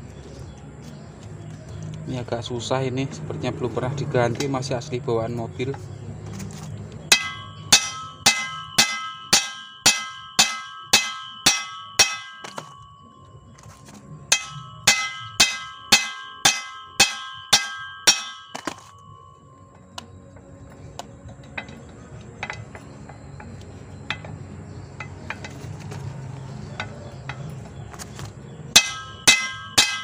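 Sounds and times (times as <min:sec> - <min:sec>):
hammer striking steel: 0:07.1 - 0:26.0, 0:26.6 - 0:30.0.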